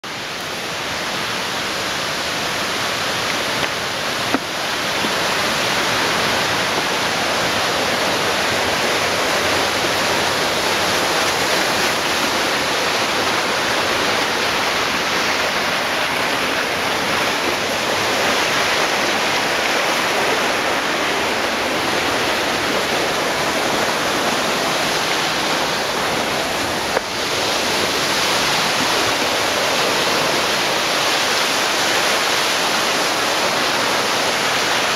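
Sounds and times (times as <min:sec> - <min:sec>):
whitewater rushing over rocks: 0:00.0 - 0:34.9.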